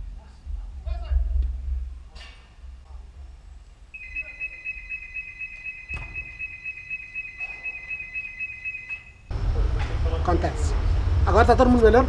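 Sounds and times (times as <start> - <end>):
electronic alarm beeping: 4.0 - 9.3
thump: 5.9 - 6.3.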